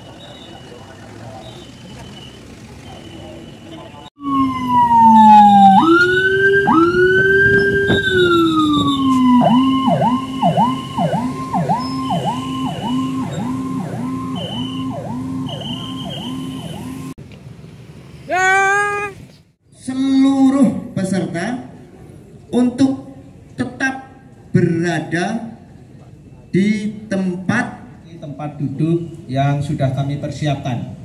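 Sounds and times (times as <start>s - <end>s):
ambulance siren: 0.0s - 17.2s.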